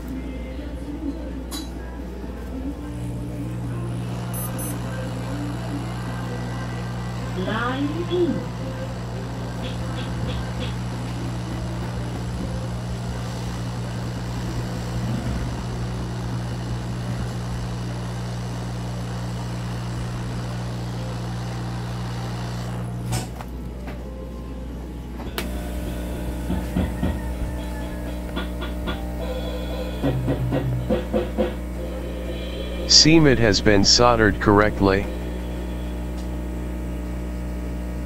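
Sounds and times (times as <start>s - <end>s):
steady hum: 0.0s - 17.9s, 22.6s - 38.0s
hot air blower rushing: 25.4s - 33.0s.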